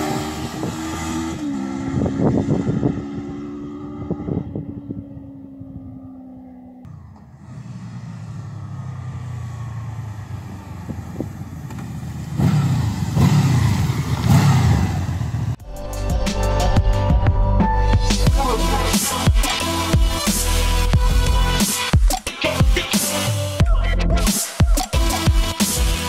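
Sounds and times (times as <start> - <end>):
motorcycle engine passing: 0.0 - 15.6.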